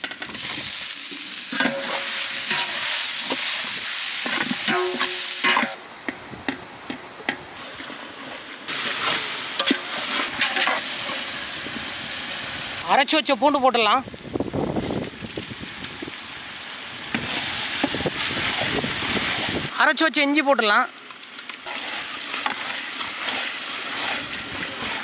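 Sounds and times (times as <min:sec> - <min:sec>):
vegetables sizzling in oil: 0:00.0 - 0:05.8, 0:07.6 - 0:25.0
metal ladle scraping a pot: 0:01.5 - 0:03.4, 0:08.7 - 0:11.2, 0:21.7 - 0:25.0.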